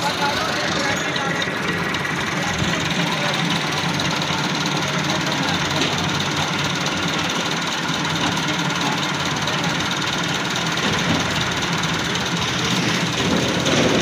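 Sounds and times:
engine idling: 0.0s - 14.0s.

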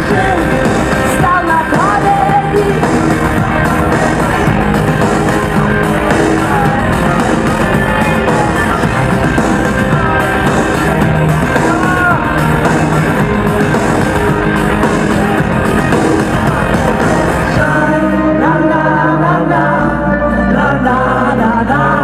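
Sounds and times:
woman singing: 0.0s - 3.6s
live rock band playing: 0.0s - 19.3s.

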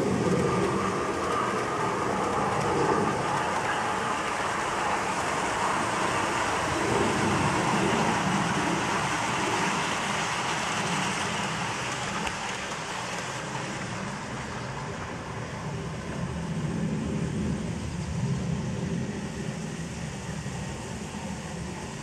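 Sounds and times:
model train wheels rattling on rail: 9.5s - 14.0s.

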